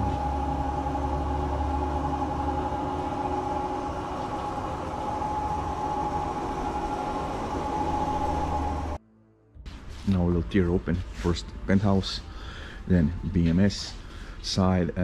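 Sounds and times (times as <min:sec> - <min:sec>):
hydraulic pump motor whining: 0:00.0 - 0:09.0.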